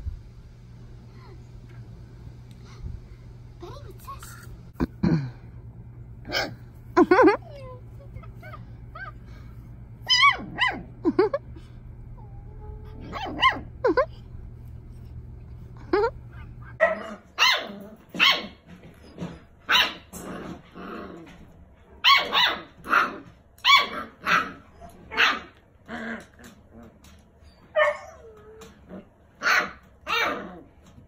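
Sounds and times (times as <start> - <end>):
puppy whining: 7.1 - 9.4, 10.0 - 11.4, 12.1 - 14.2, 27.4 - 29.0
puppies yipping: 10.0 - 10.8.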